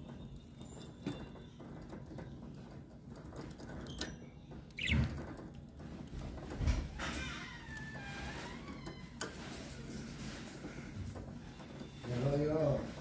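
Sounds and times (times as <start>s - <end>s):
bird chirp: 4.7s - 5.2s.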